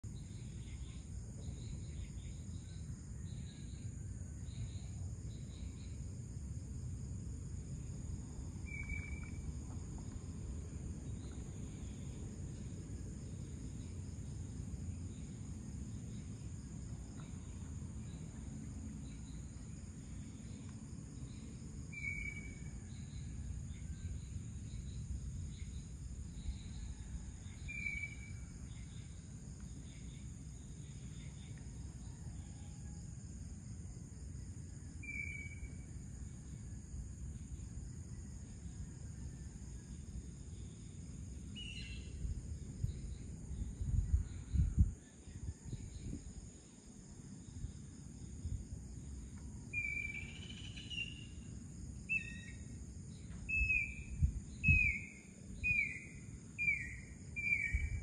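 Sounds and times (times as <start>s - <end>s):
crickets trilling: 0.0s - 58.0s
low background rumble: 4.6s - 21.9s.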